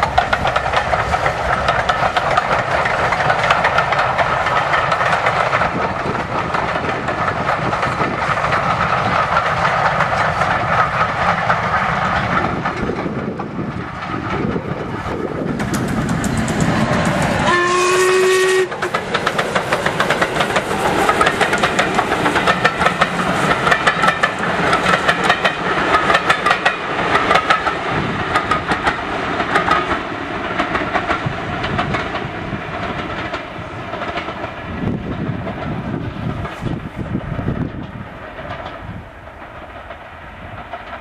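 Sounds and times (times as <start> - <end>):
steam locomotive exhaust beat: 0.0 - 41.0
train wheels clattering over rail joints: 0.0 - 41.0
steam locomotive whistle: 17.4 - 19.0.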